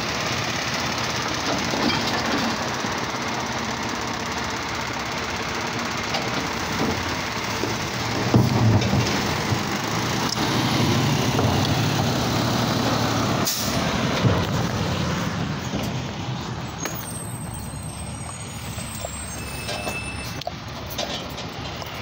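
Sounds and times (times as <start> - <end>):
garbage truck engine: 0.0 - 22.0
air brake hiss: 13.4 - 13.9.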